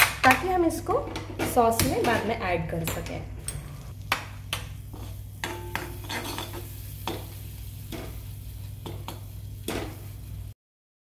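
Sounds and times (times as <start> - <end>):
butter sizzling in a pan: 3.9 - 10.6.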